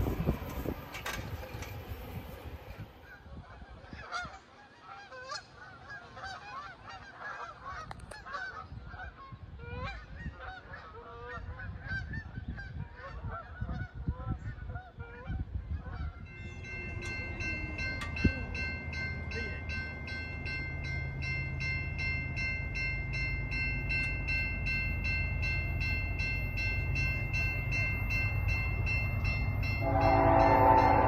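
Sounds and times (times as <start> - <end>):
train horn chord: 29.7 - 31.0.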